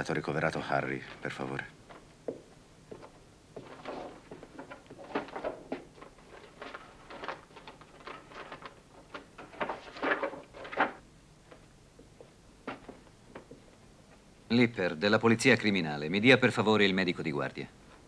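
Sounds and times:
papers rustling in cardboard box: 3.7 - 11.0.

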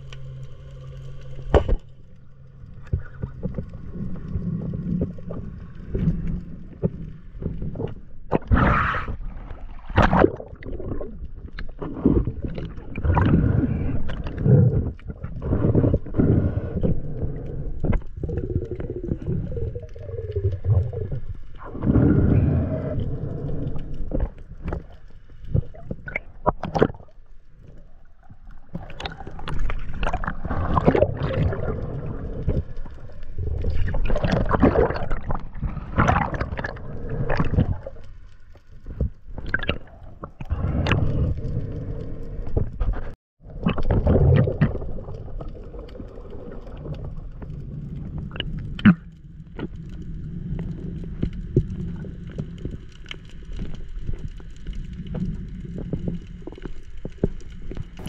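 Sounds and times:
water splashes: 0.0 - 41.8
water gurgling and sloshing: 0.0 - 58.0.

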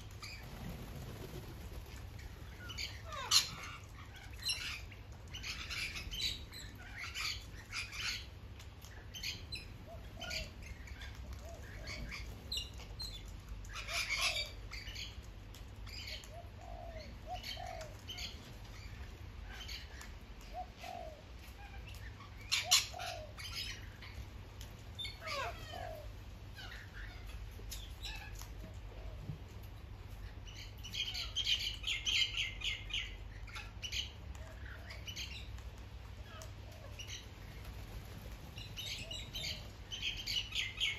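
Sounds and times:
parrots screeching: 2.7 - 4.9, 25.1 - 27.4.

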